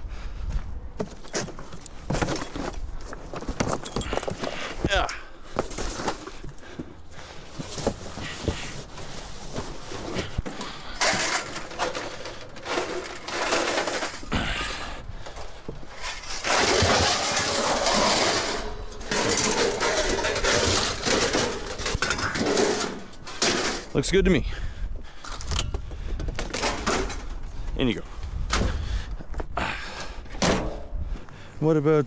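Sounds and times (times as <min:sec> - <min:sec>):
scrap metal and plastic clattering: 0:07.5 - 0:24.0, 0:25.2 - 0:27.4.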